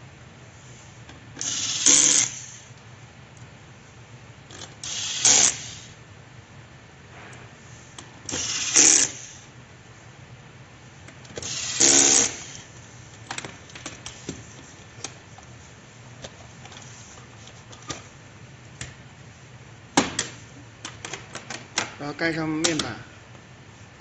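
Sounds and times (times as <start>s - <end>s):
electric screwdriver whirring: 8.3s - 9.2s, 11.4s - 12.6s.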